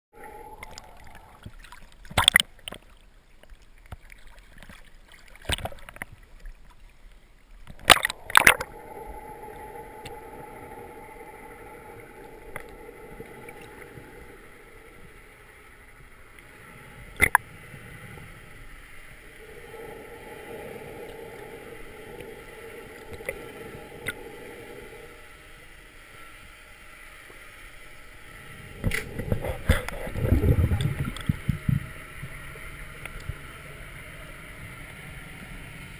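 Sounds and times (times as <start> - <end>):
underwater low hiss: 0.2 - 2.8, 7.6 - 35.9
faint hum: 0.2 - 35.9
low rumbling slosh: 8.1 - 25.4, 28.2 - 33.9.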